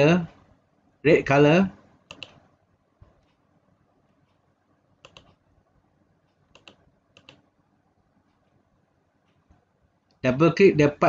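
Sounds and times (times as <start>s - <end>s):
faint computer mouse clicks: 2.1s - 2.4s, 5.0s - 5.4s, 6.3s - 7.5s.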